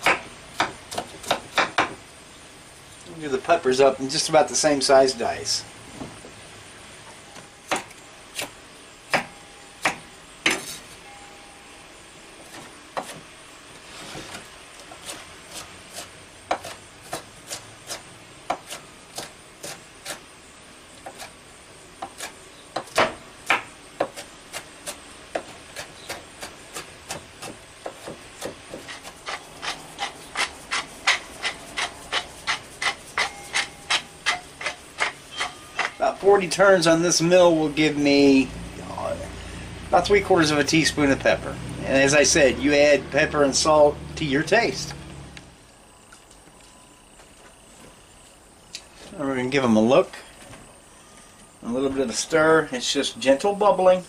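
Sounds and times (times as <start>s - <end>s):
knife chopping on wooden board: 0.0s - 2.0s, 7.7s - 8.5s, 9.1s - 10.7s, 12.5s - 13.2s, 15.0s - 20.2s, 22.0s - 35.9s.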